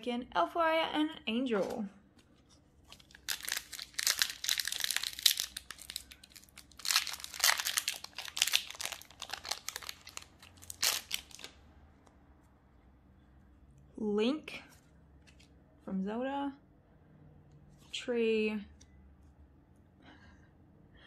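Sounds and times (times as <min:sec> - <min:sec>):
foil wrapper crinkling: 0:02.9 - 0:11.6.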